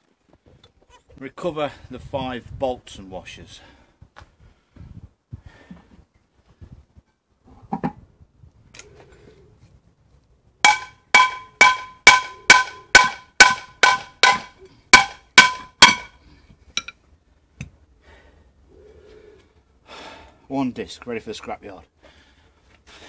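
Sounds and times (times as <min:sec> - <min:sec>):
hammer striking metal: 0:10.6 - 0:16.2.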